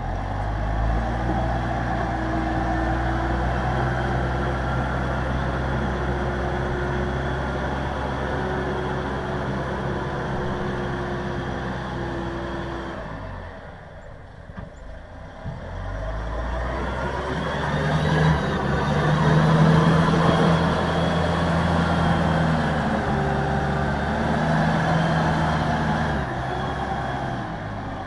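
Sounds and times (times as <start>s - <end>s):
loader engine running: 0.0s - 28.0s
steady whine: 6.2s - 12.6s.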